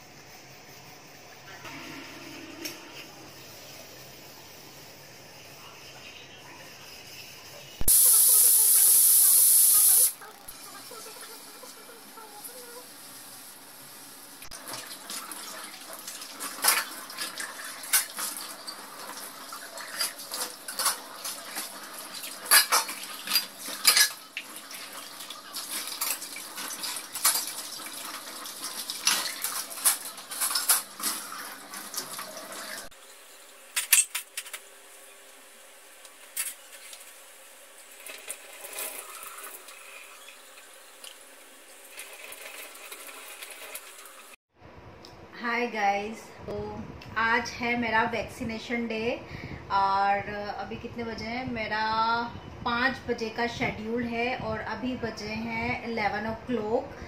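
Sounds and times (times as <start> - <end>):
running tap water splashing: 14.4 - 32.9, 37.9 - 44.4.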